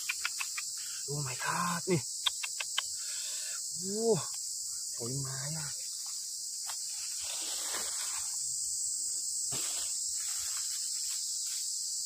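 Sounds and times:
high-pitched insect drone: 0.0s - 12.0s
straw and leaves rustling: 5.3s - 8.6s, 9.4s - 11.8s.

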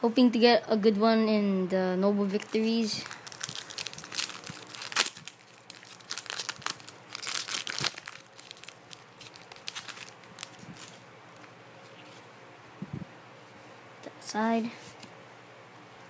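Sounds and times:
foil wrapper crinkling: 2.2s - 11.5s
foil wrapper tearing: 2.4s - 11.0s.

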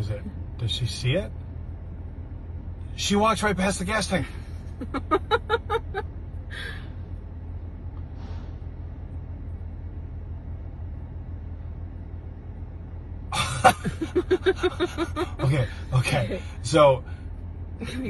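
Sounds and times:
low background rumble: 0.0s - 18.0s
person speaking: 13.9s - 16.5s.

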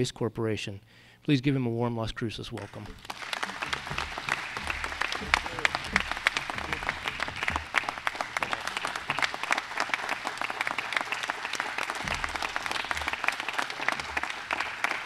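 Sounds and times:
audience applauding: 2.6s - 15.0s
low thuds: 2.7s - 9.5s, 12.0s - 14.3s.

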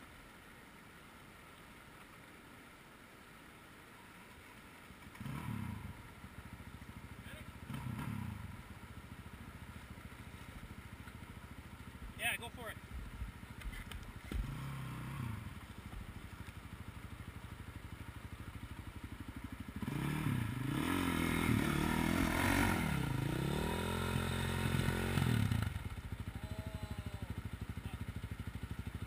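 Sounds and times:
dirt bike engine idling: 5.0s - 29.0s
dirt bike engine revving: 5.2s - 6.0s, 7.2s - 8.7s, 14.3s - 15.6s, 19.6s - 29.0s.

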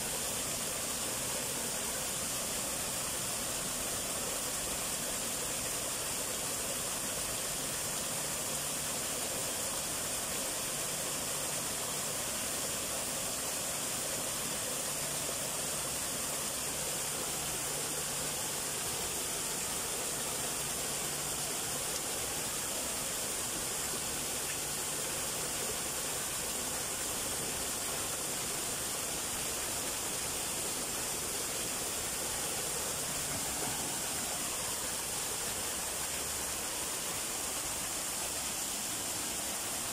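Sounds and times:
water splashing over rocks: 0.0s - 39.9s.

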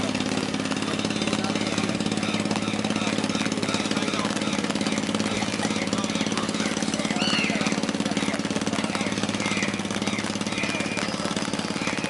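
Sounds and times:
engine running with even knocking: 0.0s - 12.0s.

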